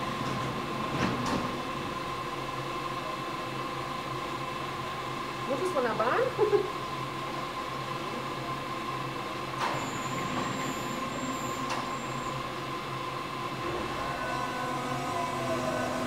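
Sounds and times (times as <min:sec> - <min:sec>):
train electrical hum: 0:00.0 - 0:16.0
traction motor whine: 0:13.4 - 0:16.0
high door warning tone: 0:13.6 - 0:16.0.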